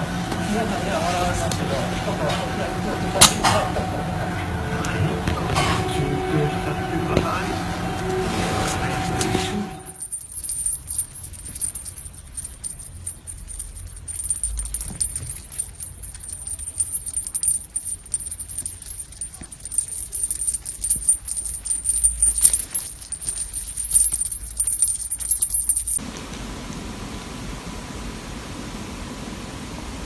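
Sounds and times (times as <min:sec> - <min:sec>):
small bell jingling: 0:09.8 - 0:26.0.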